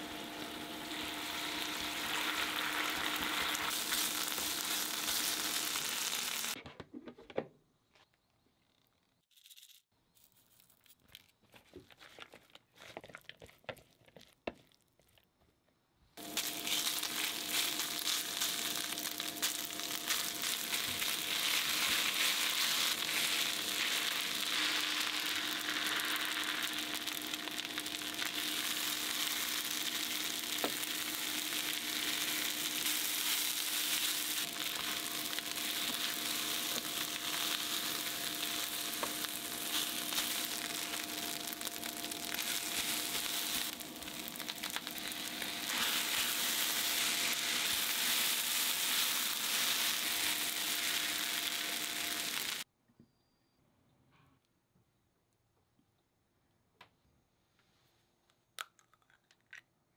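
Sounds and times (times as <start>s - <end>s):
food sizzling in a frying pan: 0.0s - 6.6s, 16.2s - 52.7s.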